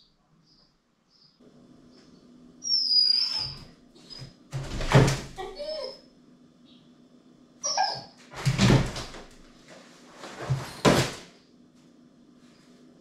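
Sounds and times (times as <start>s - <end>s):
dog whining: 2.6s - 4.4s, 5.3s - 6.1s, 7.6s - 8.3s
paws thumping against appliance: 8.4s - 9.6s.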